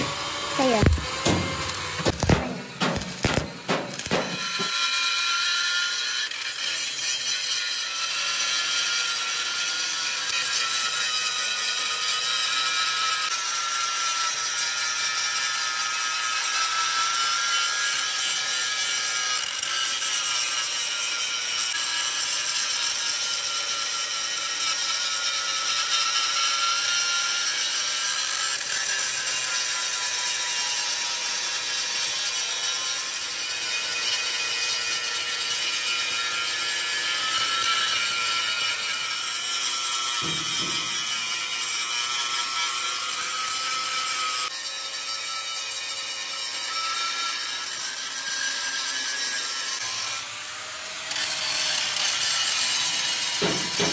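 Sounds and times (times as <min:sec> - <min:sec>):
power tool whining under load: 0:00.0 - 0:04.9, 0:49.6 - 0:53.9.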